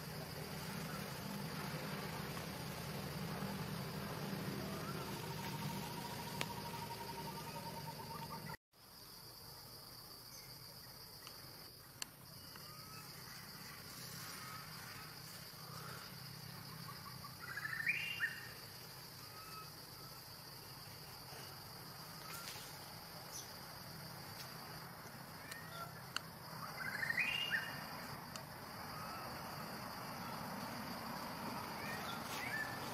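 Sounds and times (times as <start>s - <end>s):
high-pitched insect drone: 0.0s - 8.6s, 12.3s - 32.9s
rising animal calls: 0.8s - 8.6s.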